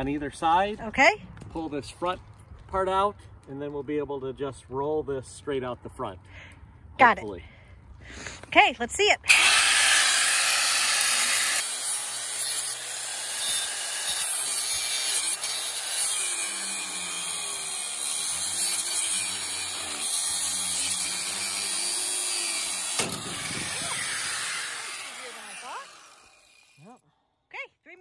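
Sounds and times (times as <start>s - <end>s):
angle grinder cutting steel: 9.3s - 26.9s.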